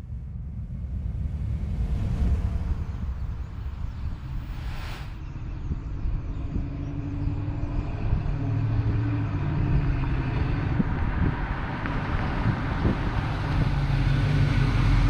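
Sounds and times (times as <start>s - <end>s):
car engine running: 0.0s - 4.8s.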